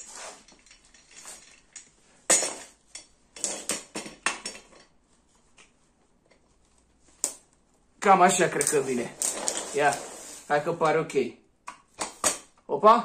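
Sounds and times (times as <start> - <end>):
metal chair parts clanking: 8.5 - 10.4.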